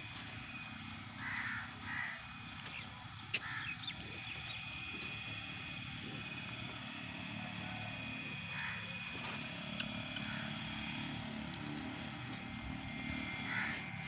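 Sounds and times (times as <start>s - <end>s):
high-pitched whine: 0.0s - 14.0s
crow cawing: 1.1s - 4.3s, 8.4s - 9.4s, 10.0s - 11.1s, 13.0s - 14.0s.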